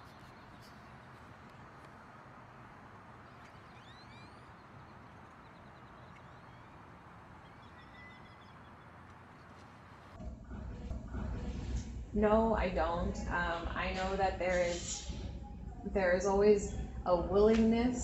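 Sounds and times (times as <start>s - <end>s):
steady low background noise: 0.0s - 18.0s
birds whistling: 3.2s - 9.7s.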